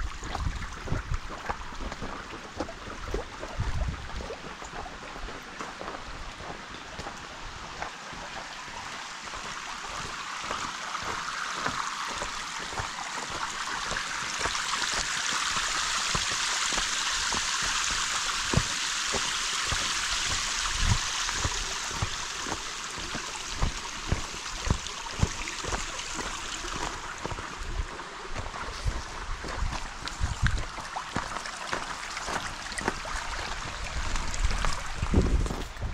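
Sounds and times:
running water rushing: 0.0s - 35.9s.

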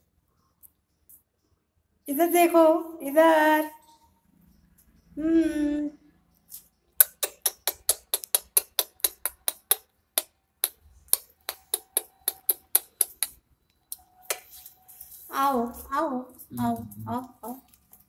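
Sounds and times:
person clicking tongue: 7.0s - 14.4s
person calling: 15.3s - 17.6s.

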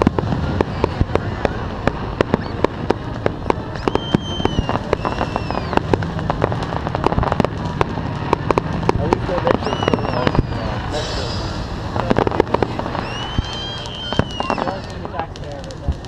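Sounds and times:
firecrackers popping: 0.0s - 16.0s
low rumble: 0.0s - 16.0s
descending whistling tones: 3.8s - 5.9s, 9.4s - 11.9s, 12.8s - 15.1s.

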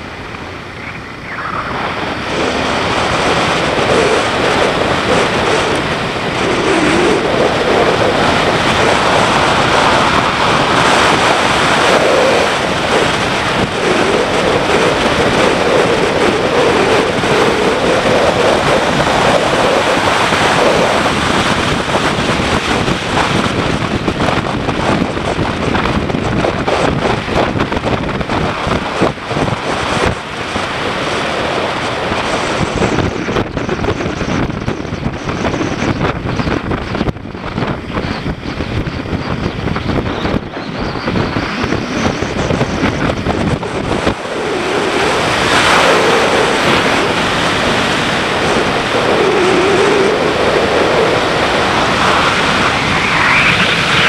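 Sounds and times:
motorcycle engine: 0.0s - 24.1s
wind rushing over microphone: 0.0s - 54.0s.

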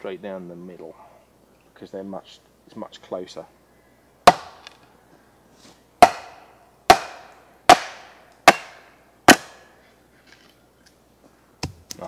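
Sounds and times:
wooden club striking axe: 4.2s - 4.8s, 6.0s - 9.6s.

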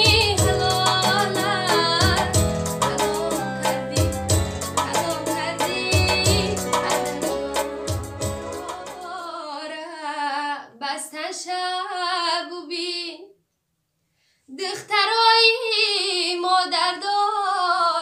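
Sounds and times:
instrumental backing: 0.0s - 9.4s
woman singing: 0.0s - 13.4s, 14.5s - 18.0s.

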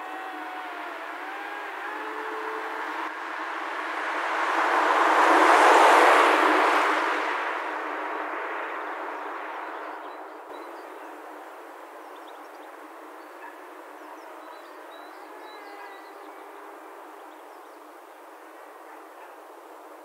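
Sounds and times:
drone motor buzzing: 0.0s - 3.1s.

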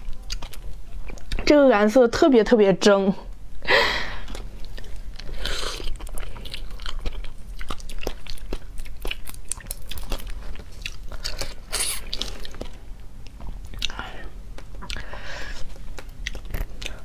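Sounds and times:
chewing: 0.0s - 1.5s, 4.2s - 17.0s.

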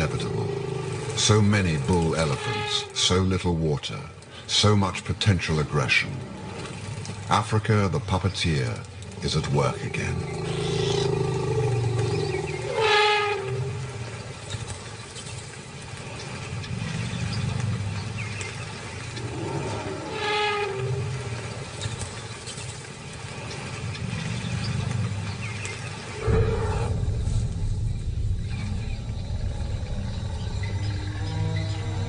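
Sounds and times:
elephants trumpeting: 0.0s - 3.0s, 10.2s - 14.2s, 19.2s - 21.7s
low rumble: 23.8s - 32.0s.

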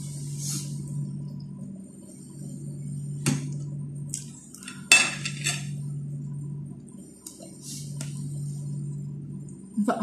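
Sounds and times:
steady low hum: 0.0s - 10.0s
spoon clinking on ceramic plates: 4.6s - 5.7s.

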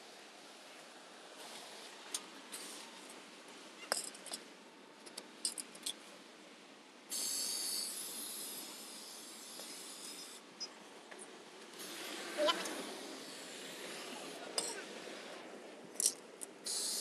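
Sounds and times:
aerosol spray can hissing: 7.1s - 10.4s, 16.6s - 17.0s.

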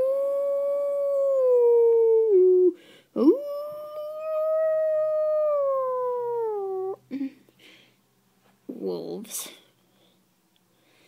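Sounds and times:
long howls: 0.0s - 7.0s.

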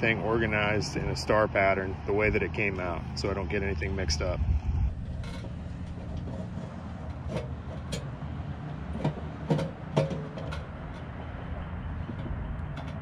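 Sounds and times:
low background rumble: 0.0s - 13.0s
clicks and knocks of handled parts: 5.1s - 11.2s, 12.0s - 13.0s.

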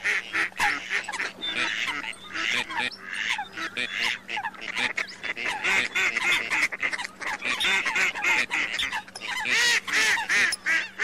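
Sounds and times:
ducks and water hens calling: 0.0s - 11.0s.

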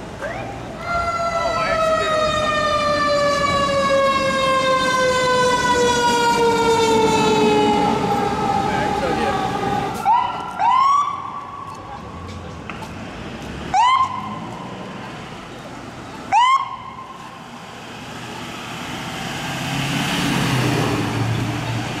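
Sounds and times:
ambulance siren whoops: 0.2s - 11.7s, 13.7s - 14.4s, 16.3s - 17.1s
vehicle driving past: 17.5s - 22.0s.

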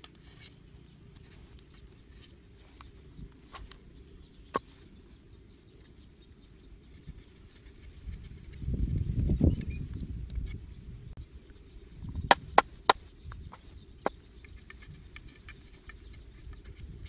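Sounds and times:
cleaver scraping bamboo: 0.0s - 3.8s, 6.8s - 9.0s.

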